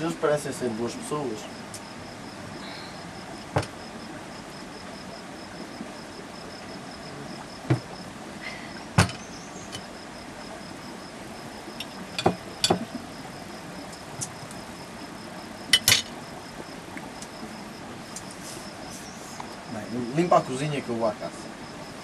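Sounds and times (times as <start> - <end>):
cricket chirping: 0.0 - 22.0
crockery knocking and clinking: 12.2 - 12.9.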